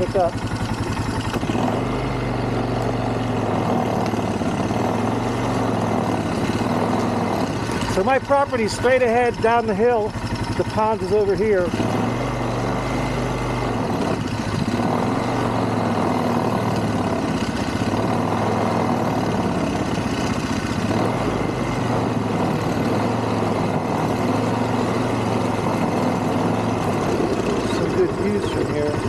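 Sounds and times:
quad engine running: 0.0s - 29.0s.

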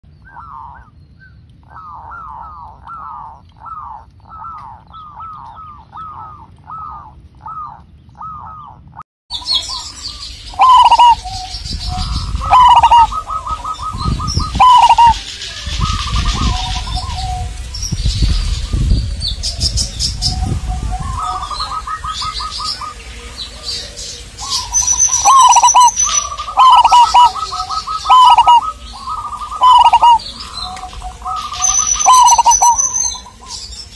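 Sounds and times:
low rumble: 0.0s - 24.9s
higher-pitched bird chirps: 0.1s - 18.7s, 24.4s - 33.9s
doves cooing: 0.2s - 33.9s.

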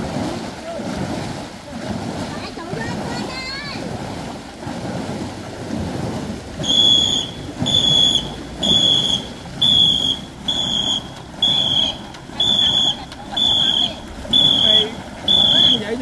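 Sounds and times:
whistle short blasts: 6.6s - 15.9s.

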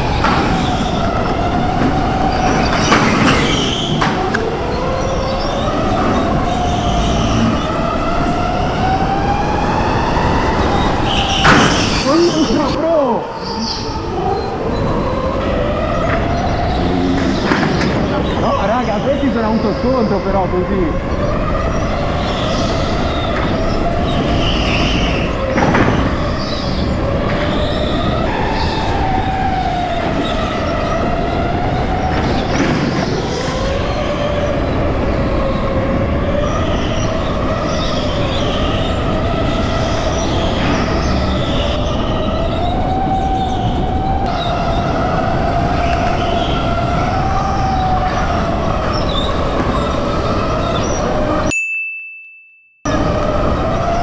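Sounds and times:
electric go-kart motor whining: 13.6s - 19.4s.

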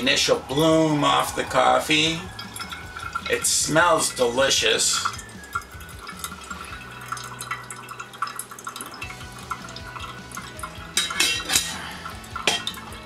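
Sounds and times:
hot water pouring onto coffee: 0.0s - 13.0s
small drips and ticks: 2.2s - 13.0s
knocks of metal or crockery: 11.0s - 11.8s.

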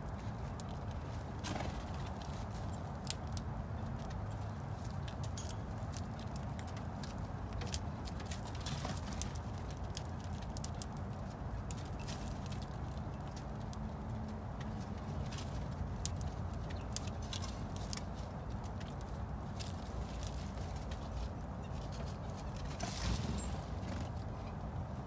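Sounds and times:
small clicks and taps: 3.0s - 21.0s.

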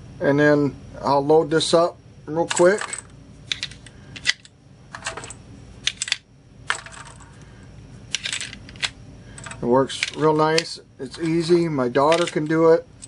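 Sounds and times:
metal cartridges clinking: 2.4s - 7.4s, 8.1s - 12.8s.

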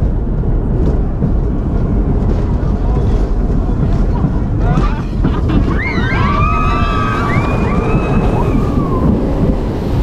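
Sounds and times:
rush of wind and water: 0.0s - 10.0s
riders screaming: 4.7s - 9.4s.

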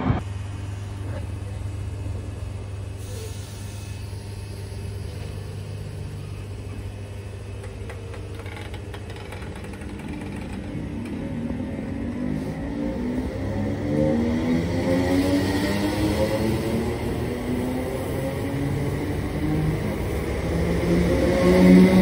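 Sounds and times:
electric train humming: 0.0s - 22.0s
train motor accelerating: 0.0s - 22.0s.

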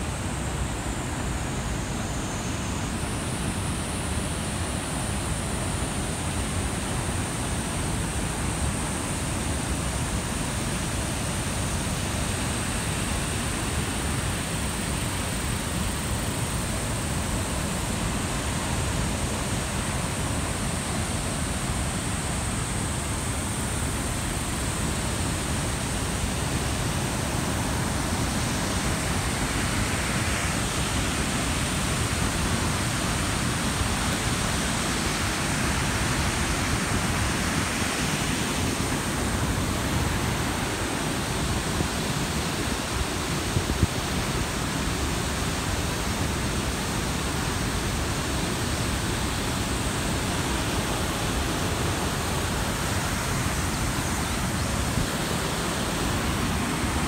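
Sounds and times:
river water rushing over rapids: 0.0s - 57.0s.

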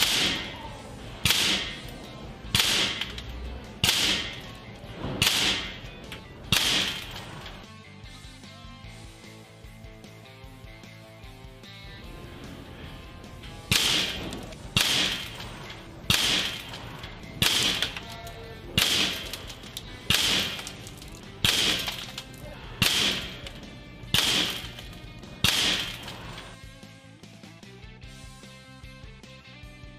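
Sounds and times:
air pistol shots: 0.0s - 7.7s, 13.6s - 26.6s.

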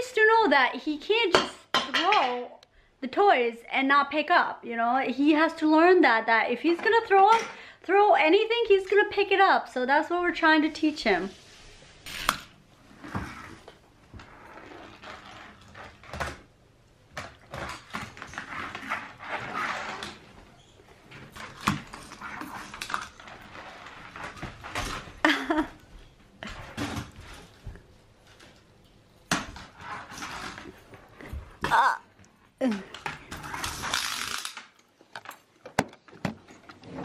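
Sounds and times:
toddler vocal sounds: 31.6s - 32.9s.

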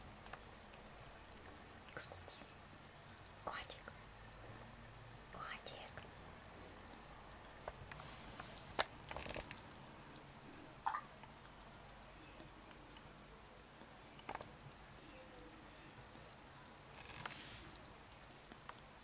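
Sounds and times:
kitten chewing and licking food: 0.0s - 19.0s
sharp mouth clicks: 9.5s - 15.6s.

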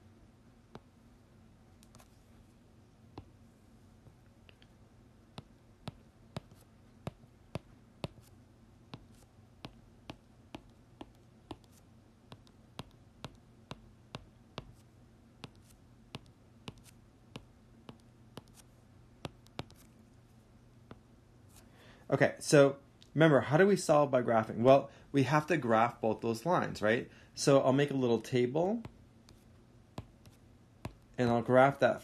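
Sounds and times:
faint low hum: 0.0s - 32.0s
marker pen ticking on paper: 8.9s - 14.8s, 15.4s - 18.6s.

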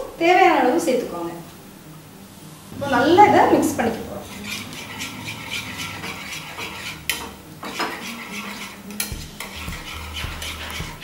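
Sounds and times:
whisk beating eggs in a bowl: 4.3s - 11.0s.

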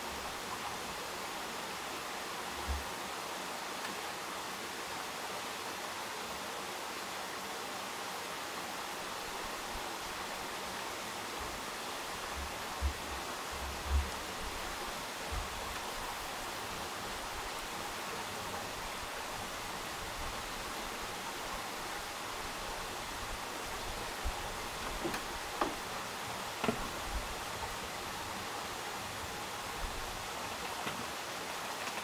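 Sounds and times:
steady background hiss: 0.0s - 32.0s
faint knocks and clicks: 24.8s - 25.8s.

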